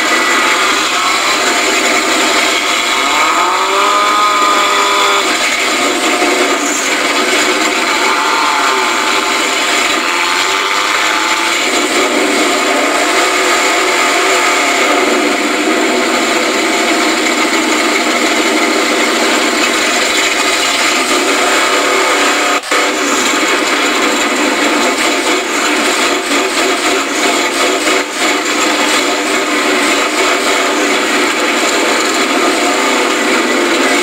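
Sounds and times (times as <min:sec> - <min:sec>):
truck engines running hard: 0:00.0 - 0:34.0.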